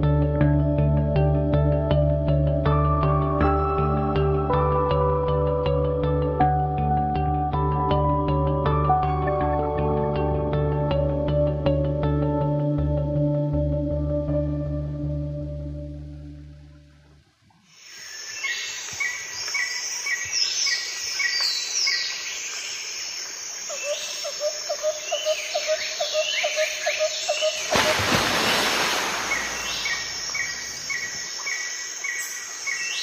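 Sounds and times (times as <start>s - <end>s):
low rapidly pulsed bird call: 28.6s - 33.0s
birds chirping and whistling: 29.2s - 33.0s.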